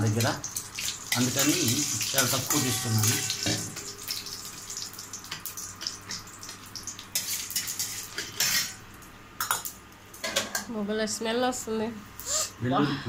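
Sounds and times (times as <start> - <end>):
paste sizzling in hot oil: 0.0 - 8.8.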